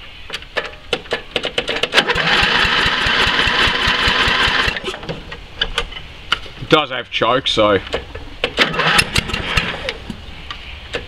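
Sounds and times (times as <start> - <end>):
electric starter cranking engine: 1.9 - 4.9, 8.6 - 9.9.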